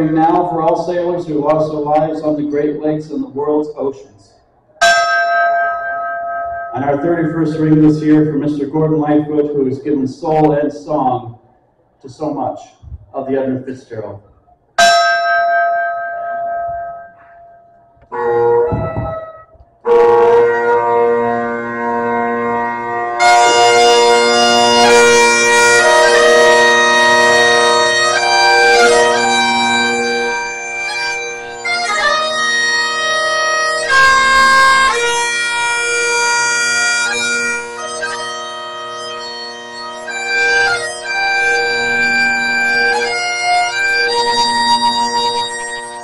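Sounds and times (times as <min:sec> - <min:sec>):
bagpipes playing slow tune: 0:14.8 - 0:46.0.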